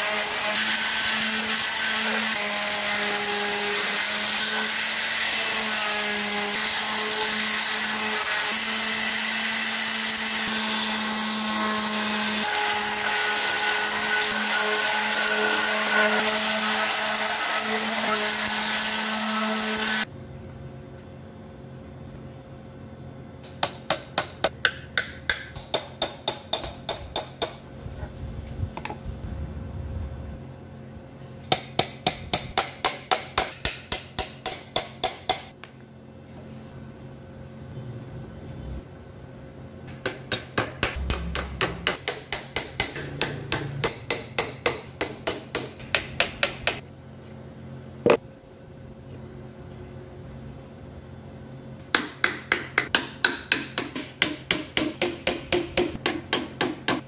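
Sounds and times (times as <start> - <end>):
hammer tapping: 40.0 - 46.8
sharp knock: 40.6 - 43.7.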